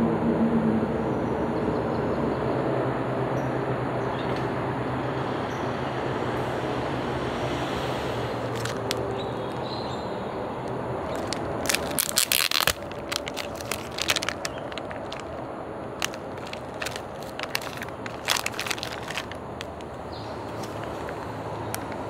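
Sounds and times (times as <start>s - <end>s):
steady background noise: 0.0s - 22.0s
plastic wrapper crinkling: 8.5s - 9.1s, 11.0s - 22.0s.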